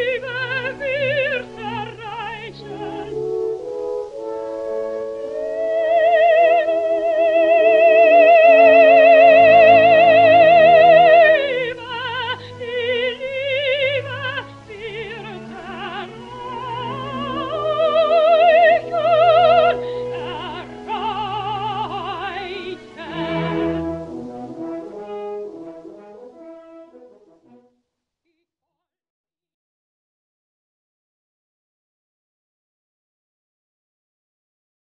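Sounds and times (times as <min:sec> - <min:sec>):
operatic soprano singing: 0:00.0 - 0:26.4
orchestra accompaniment: 0:00.0 - 0:27.7.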